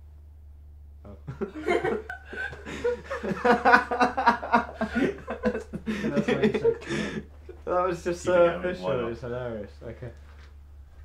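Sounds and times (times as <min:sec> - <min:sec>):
man laughing: 0:01.2 - 0:07.3.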